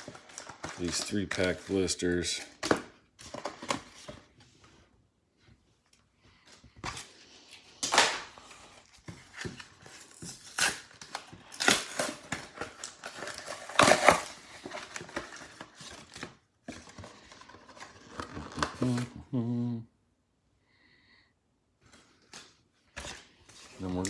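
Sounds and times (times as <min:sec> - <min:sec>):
cardboard ripping: 0:09.2 - 0:16.2.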